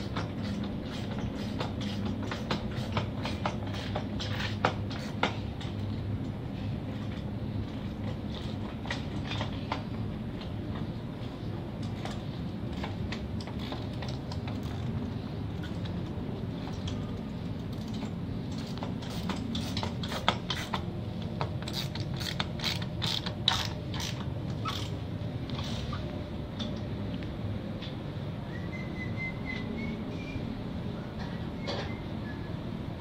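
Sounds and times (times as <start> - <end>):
steady low rumble: 4.0 - 28.5
sharp mechanical clicking: 21.6 - 25.0.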